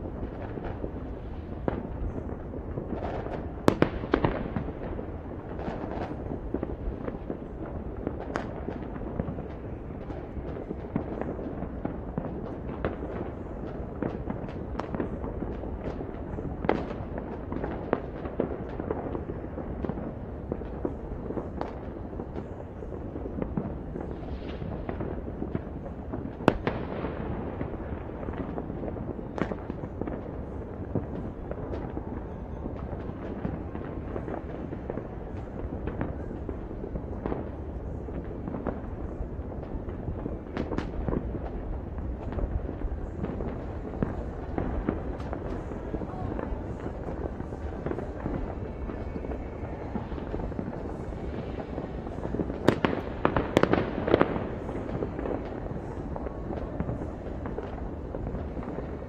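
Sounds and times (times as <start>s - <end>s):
fireworks cracks: 0.0s - 59.0s
rumble of fireworks bangs: 0.0s - 59.0s.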